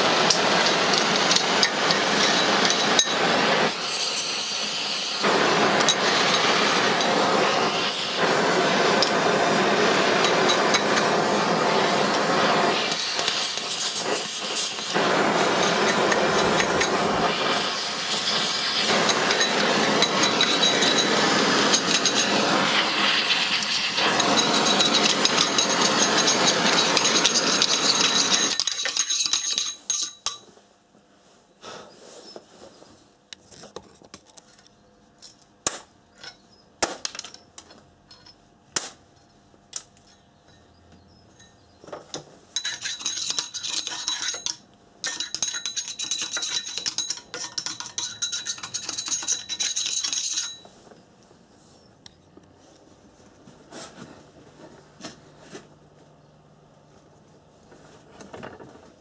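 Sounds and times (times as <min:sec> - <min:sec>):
gas torch flame hissing: 0:00.0 - 0:29.8.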